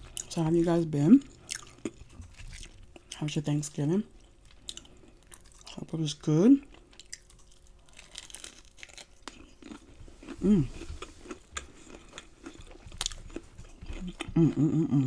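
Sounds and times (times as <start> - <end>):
crunching and chewing fried food: 0.0 - 15.0
person humming: 10.4 - 10.8, 14.0 - 15.0.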